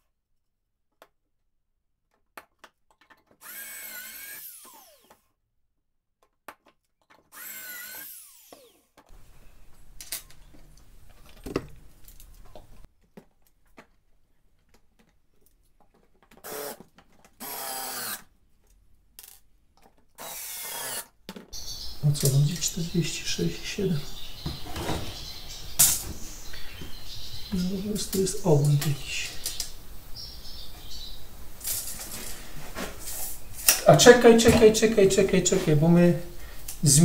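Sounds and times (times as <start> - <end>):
cordless drill driving screws: 3.4 - 5.2, 7.3 - 8.9, 16.4 - 18.3, 20.2 - 21.1
power drill whirring: 3.4 - 5.3, 7.3 - 9.0, 16.4 - 16.8, 17.4 - 18.3, 20.2 - 21.1.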